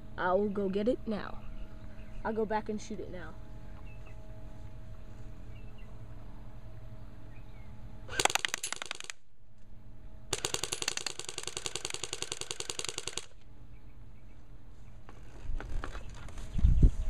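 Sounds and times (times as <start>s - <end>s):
airsoft gun firing full-auto: 8.1s - 9.2s, 10.3s - 13.4s.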